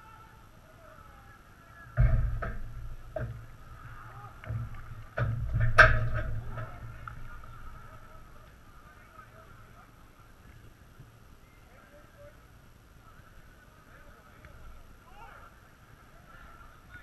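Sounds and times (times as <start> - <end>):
distant players shouting: 0.0 - 9.4
thumps on goal frame: 2.0 - 3.5, 4.4 - 7.0.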